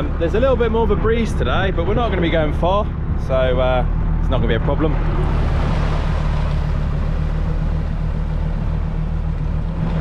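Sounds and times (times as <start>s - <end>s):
tractor engine running: 0.0s - 10.0s
water splashing: 4.9s - 10.0s.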